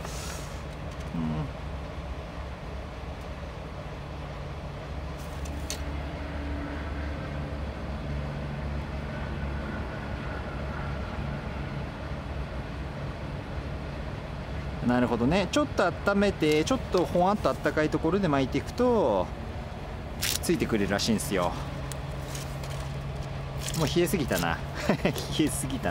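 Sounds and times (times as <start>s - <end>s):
engine idling: 0.0s - 25.9s.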